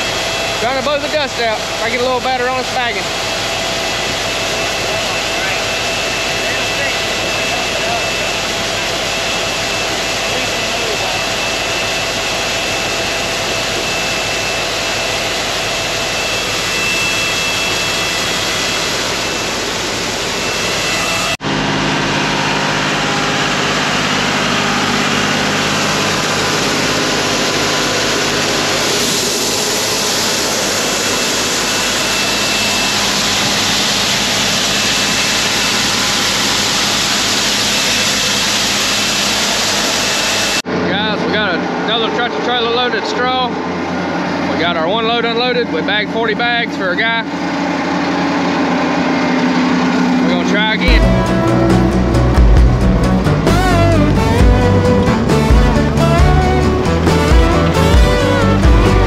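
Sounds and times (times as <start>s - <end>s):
grain auger running: 0.0s - 59.0s
tractor engine running: 21.4s - 59.0s.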